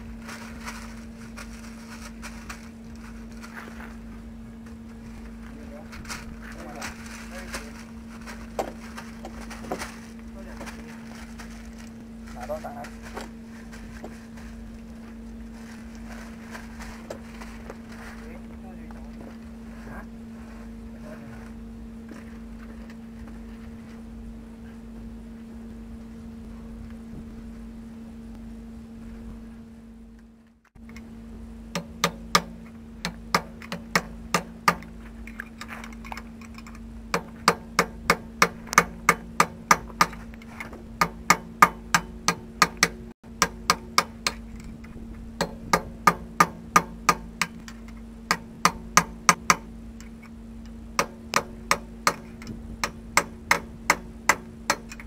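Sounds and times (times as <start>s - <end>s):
low hum: 0.0s - 55.0s
hammer striking steel punch: 31.7s - 34.9s, 37.1s - 40.2s, 41.0s - 44.5s, 45.4s - 47.6s, 48.3s - 49.7s, 51.0s - 55.0s.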